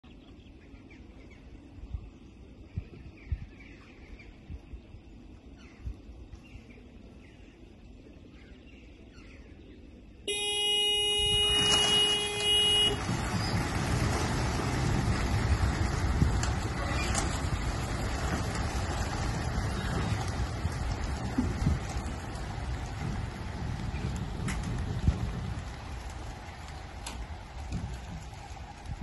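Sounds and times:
horn sounding: 0:10.3 - 0:14.4
rush of pigeons' wings taking off: 0:10.4 - 0:29.0.

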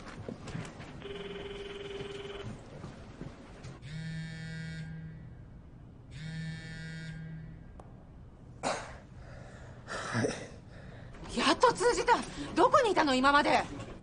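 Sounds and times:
mobile phone buzzing: 0:01.0 - 0:02.6, 0:06.1 - 0:07.6
telephone ringback tone: 0:01.0 - 0:02.6.

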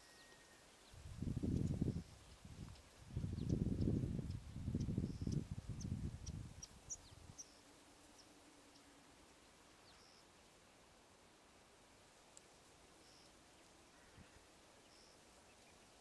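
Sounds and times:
faint steady hum: 0:00.0 - 0:16.0
wind buffeting microphone: 0:01.0 - 0:07.4.

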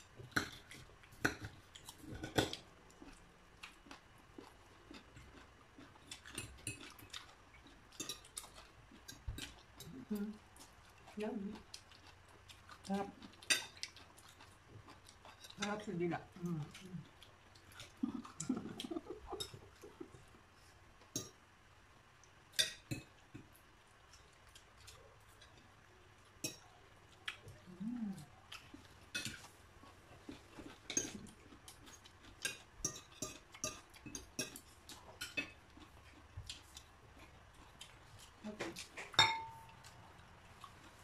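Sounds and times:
cutlery clinking on plates: 0:39.0 - 0:39.8.

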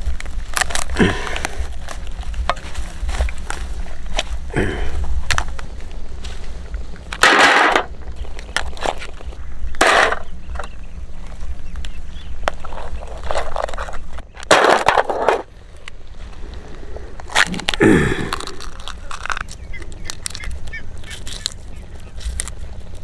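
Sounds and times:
crab shells crunching: 0:00.0 - 0:06.1, 0:11.9 - 0:23.0.

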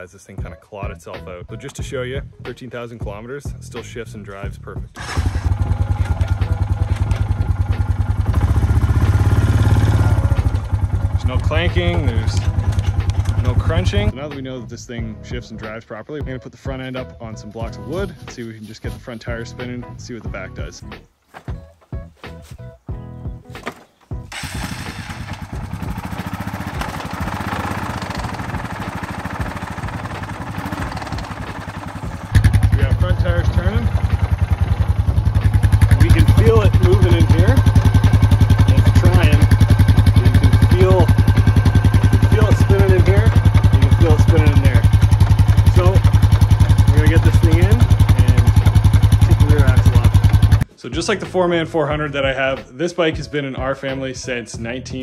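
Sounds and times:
atv engine running: 0:04.6 - 0:14.1, 0:24.2 - 0:50.6.

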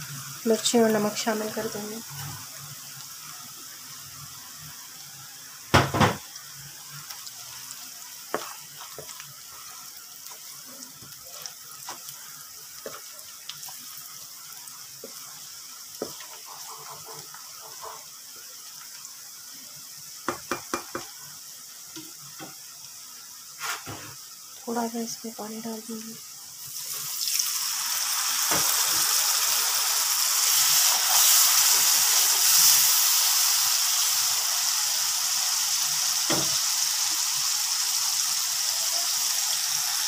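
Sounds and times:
onions sizzling in oil: 0:00.0 - 0:40.0
spatula knocking on pan: 0:20.2 - 0:21.1.

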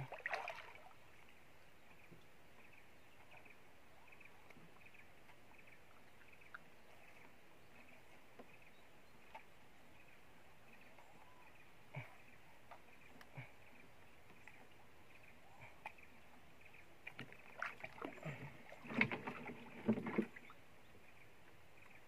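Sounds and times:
faint high-pitched wildlife chirping: 0:00.0 - 0:22.0
soft water thump: 0:18.8 - 0:20.4.

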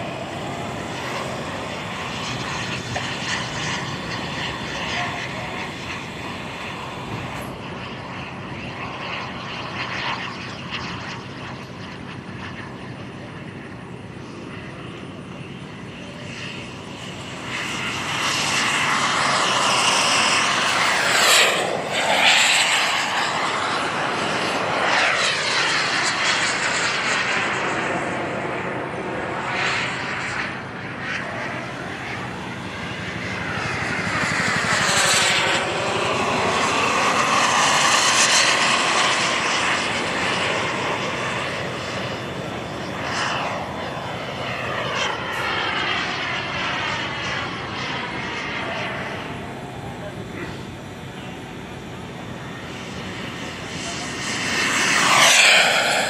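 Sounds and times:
model jet engine flying past: 0:00.0 - 0:56.0.

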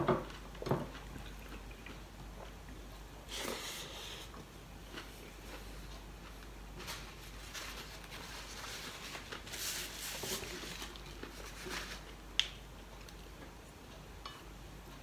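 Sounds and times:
chewing: 0:00.3 - 0:03.1, 0:03.9 - 0:07.1
paper napkin rustling: 0:06.8 - 0:12.2.

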